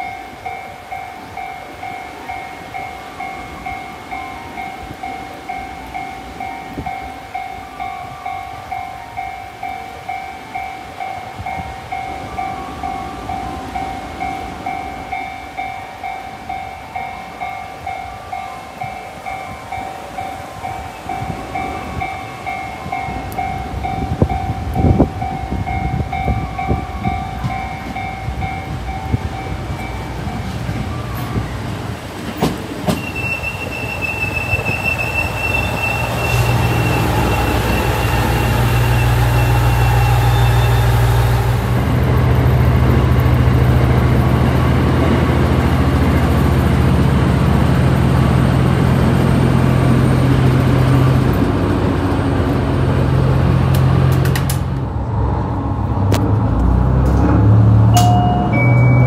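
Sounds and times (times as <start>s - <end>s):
train wheels rattling on rails: 0.0s - 59.0s
high wheel squeal: 24.9s - 41.8s
diesel engine droning: 34.8s - 59.0s.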